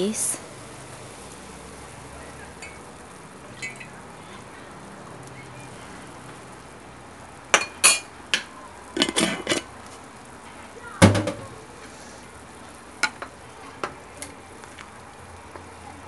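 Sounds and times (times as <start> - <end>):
soup boiling: 0.0 - 10.6.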